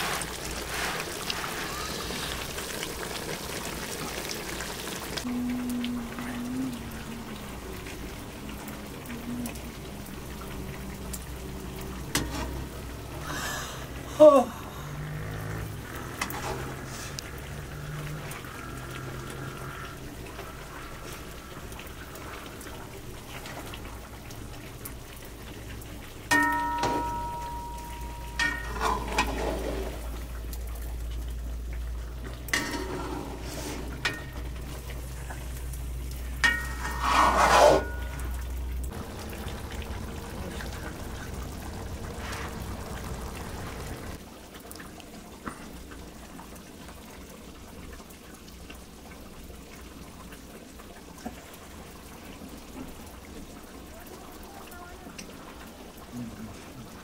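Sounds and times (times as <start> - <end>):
ladle scraping metal wok: 0.0 - 2.5, 12.1 - 12.7, 28.4 - 30.2, 32.5 - 34.6, 36.4 - 38.5
water boiling: 0.0 - 57.0
ladle clinking on metal: 26.3 - 29.4.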